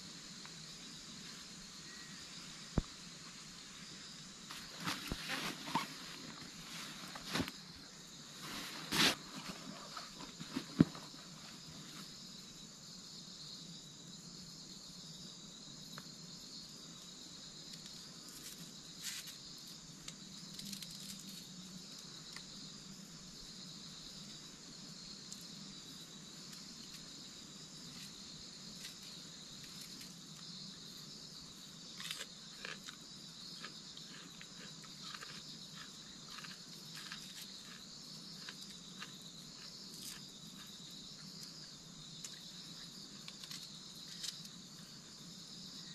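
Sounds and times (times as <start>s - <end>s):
insects chirring: 0.0s - 45.9s.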